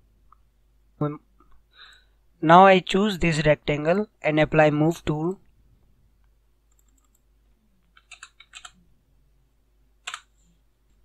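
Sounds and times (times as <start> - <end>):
keyboard key presses: 7.9 - 8.8, 10.0 - 10.3.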